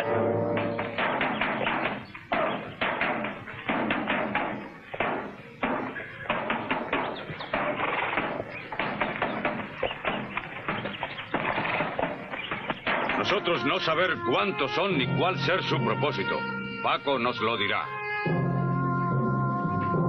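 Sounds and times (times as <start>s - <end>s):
snare drum beating a march: 0.0s - 10.9s
footsteps: 0.0s - 13.7s
horses' hooves: 0.0s - 14.6s.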